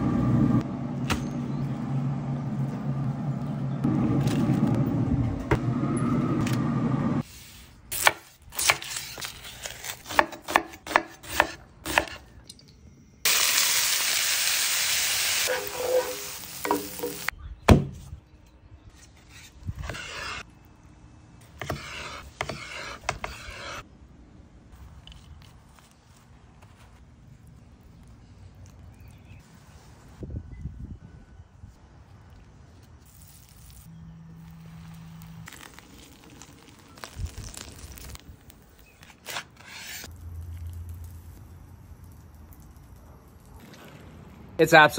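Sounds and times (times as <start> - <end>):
onions sizzling in a hot pan: 13.3 - 17.3
wooden spatula scraping and stirring: 21.6 - 23.8.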